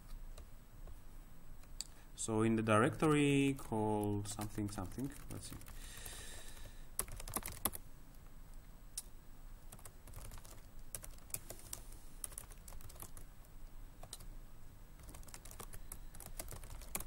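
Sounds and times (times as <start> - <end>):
keyboard typing clicks: 4.4 - 7.8, 15.0 - 17.0.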